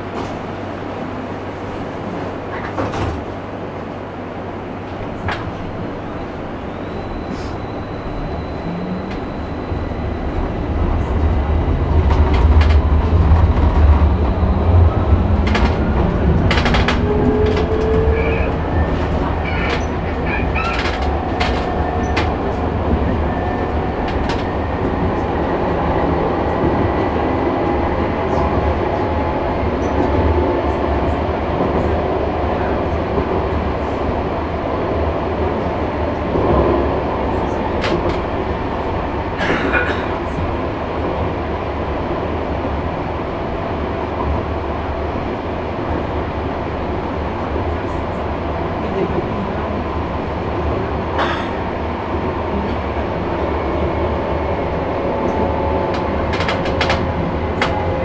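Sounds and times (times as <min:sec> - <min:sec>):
tram wheels rumbling on rails: 0:00.0 - 0:58.0
clicks and clacks over rails: 0:15.4 - 0:18.1, 0:55.3 - 0:58.0.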